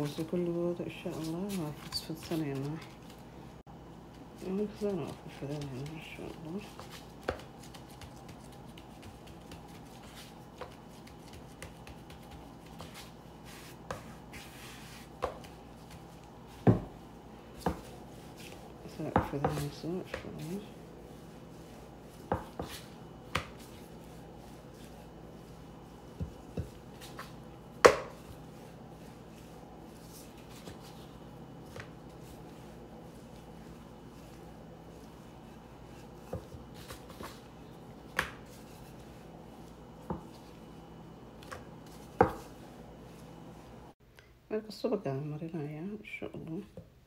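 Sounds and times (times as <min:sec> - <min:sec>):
handling dough: 0:00.0 - 0:44.0
rolling pin knocking on cutting board: 0:27.8 - 0:28.2.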